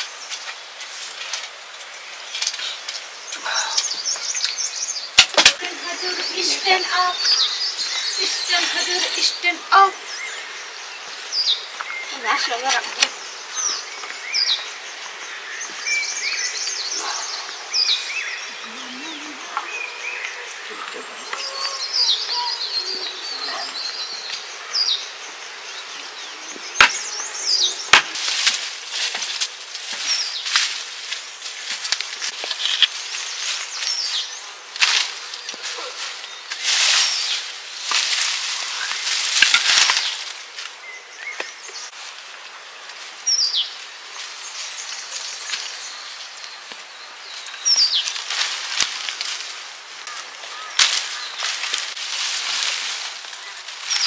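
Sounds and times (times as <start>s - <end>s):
birds chirping: 0.0s - 54.0s
rustle: 0.0s - 54.0s
sharp chopping strikes: 26.8s - 27.0s, 27.9s - 28.6s.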